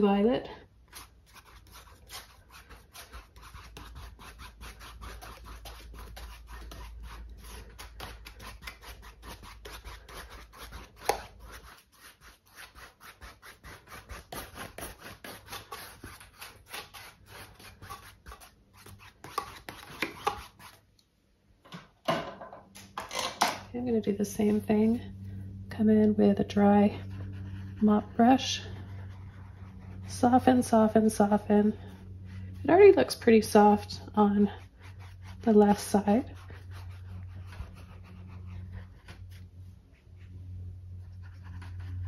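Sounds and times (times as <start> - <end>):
paintbrush scratching on canvas: 0.9 - 20.8, 24.2 - 25.1, 26.2 - 42.0.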